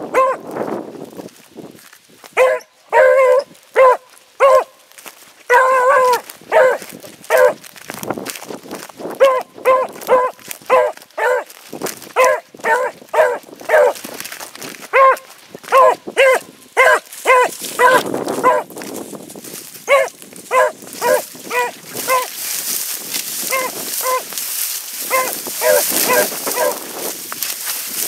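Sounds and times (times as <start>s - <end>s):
dog baying: 0.1s - 0.4s, 2.4s - 4.8s, 5.5s - 7.6s, 9.2s - 11.5s, 12.2s - 14.0s, 14.9s - 18.7s, 19.9s - 22.4s, 23.4s - 24.3s, 25.0s - 26.8s.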